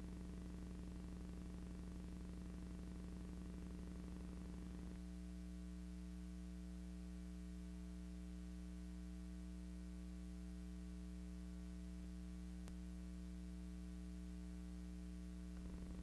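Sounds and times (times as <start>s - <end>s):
electrical mains hum: 0.0s - 16.0s
faint click: 12.6s - 12.8s.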